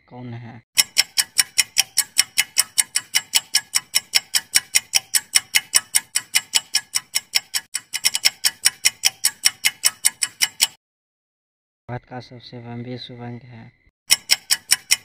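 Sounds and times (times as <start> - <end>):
clock ticking fast: 0.8 - 10.8, 14.1 - 15.0.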